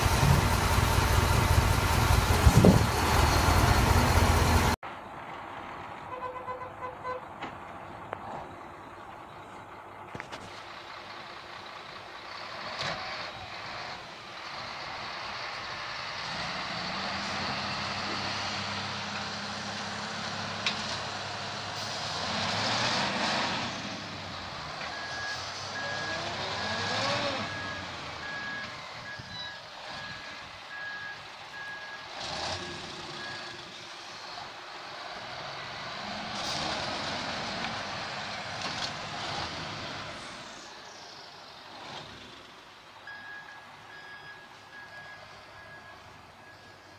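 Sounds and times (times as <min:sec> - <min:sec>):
diesel engines revving: 0:00.0 - 0:46.9
reversing alarm beeping: 0:24.9 - 0:33.6, 0:43.0 - 0:46.9.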